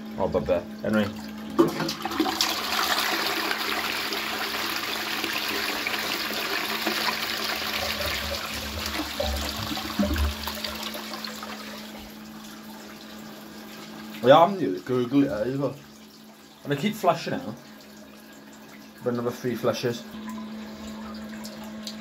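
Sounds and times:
toilet flushing: 0.0 - 22.0
low gurgles: 7.6 - 10.9.

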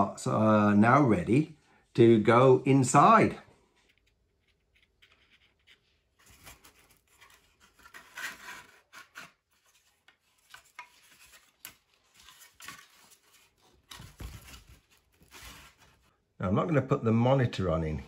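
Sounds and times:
plastic parts rubbing and scraping: 3.7 - 16.1.

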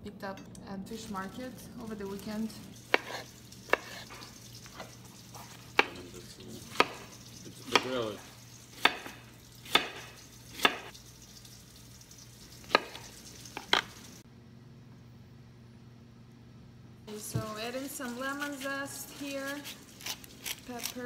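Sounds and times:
low steady hum: 0.0 - 21.0
knife chopping on cutting board: 2.9 - 6.0, 6.7 - 8.2, 8.8 - 10.9, 12.7 - 13.8.

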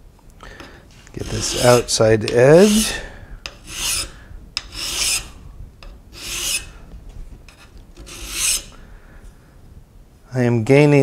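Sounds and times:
hand file rasping on metal: 1.1 - 5.4, 6.1 - 6.8, 7.5 - 8.8.

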